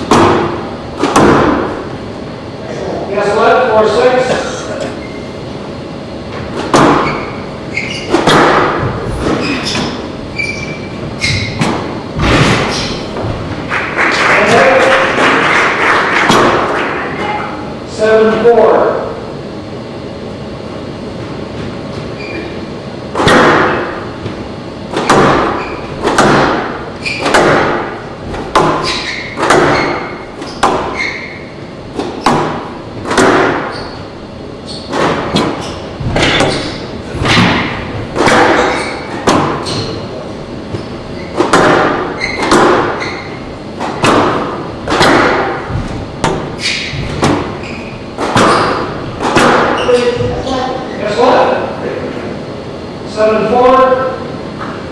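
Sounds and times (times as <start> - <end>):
squash ball hits echoing: 0.0 - 2.0, 6.3 - 17.6, 23.1 - 50.5
low hall noise: 0.0 - 54.9.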